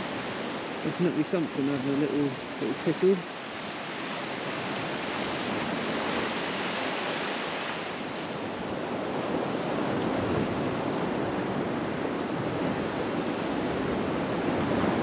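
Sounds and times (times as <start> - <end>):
sea waves on rocky shore: 0.0 - 15.0.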